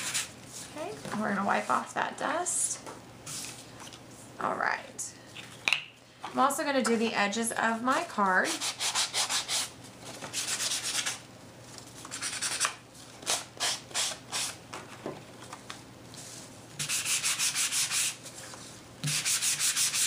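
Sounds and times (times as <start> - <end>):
sanding block scraping card edges: 8.6 - 9.7, 16.8 - 18.2, 19.0 - 20.0.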